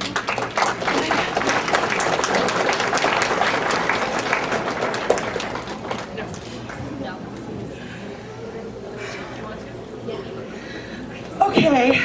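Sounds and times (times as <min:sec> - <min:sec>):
roomful of people clapping: 0:00.0 - 0:07.1.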